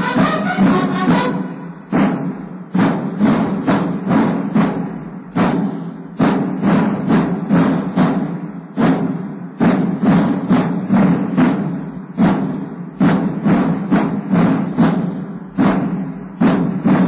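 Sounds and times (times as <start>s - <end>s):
military drums beating march: 0.0s - 17.0s.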